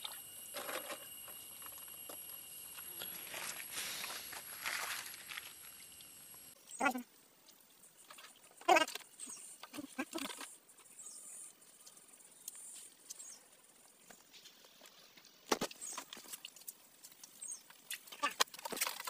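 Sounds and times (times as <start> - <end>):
digging in wet mud and stones: 3.0 - 5.8, 14.4 - 19.0.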